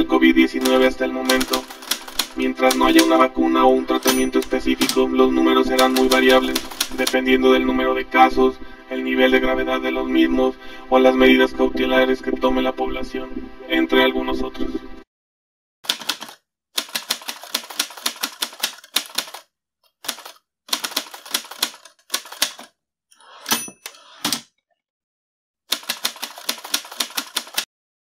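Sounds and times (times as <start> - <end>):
typewriter bell ring: 0.6 - 3.1, 4.0 - 5.0, 23.4 - 24.0
typewriter keys clacking: 0.6 - 3.2, 3.9 - 5.1, 5.7 - 7.2, 15.9 - 19.4, 20.0 - 22.7, 25.7 - 27.7.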